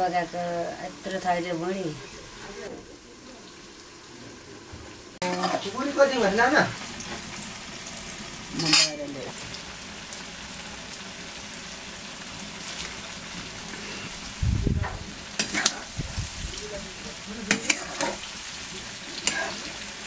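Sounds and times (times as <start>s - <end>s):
food sizzling in hot oil: 0.0s - 20.0s
utensil scraping a pan: 13.7s - 14.2s, 14.8s - 16.0s, 17.4s - 18.4s, 19.0s - 20.0s.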